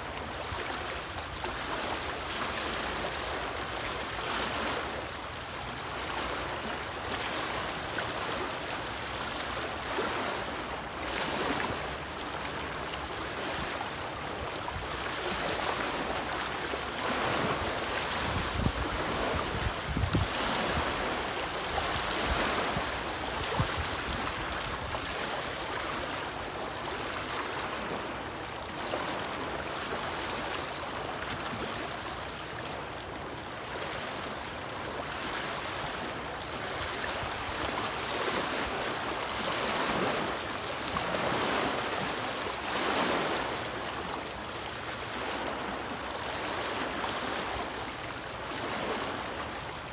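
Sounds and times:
lake waves lapping on rocks: 0.0 - 49.9
wind buffeting microphone: 18.1 - 21.0.

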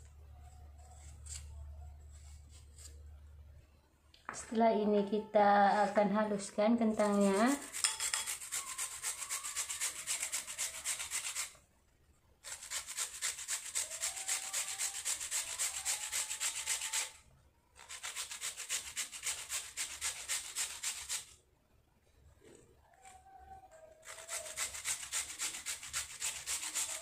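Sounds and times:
potato grated on metal grater: 6.8 - 11.6, 12.4 - 17.2, 17.8 - 21.4, 24.0 - 27.0.

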